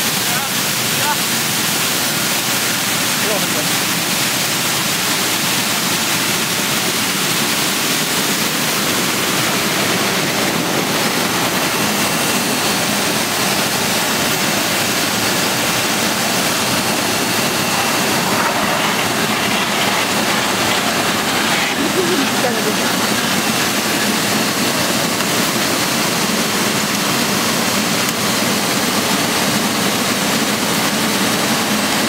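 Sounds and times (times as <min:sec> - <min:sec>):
machinery running: 0:00.0 - 0:32.0
water sprays rushing: 0:00.0 - 0:32.0.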